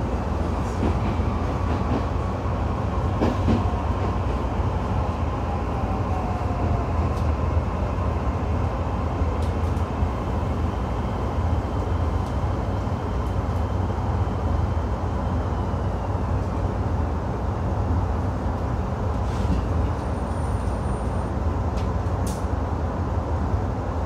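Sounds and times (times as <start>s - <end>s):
train wheels rumbling: 0.0s - 14.1s.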